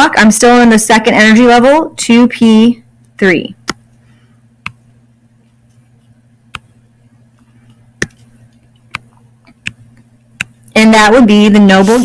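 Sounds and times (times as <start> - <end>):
faint low hum: 0.0 - 12.0
stylus tapping on touchscreen: 3.6 - 4.0, 4.6 - 6.8, 7.4 - 10.6.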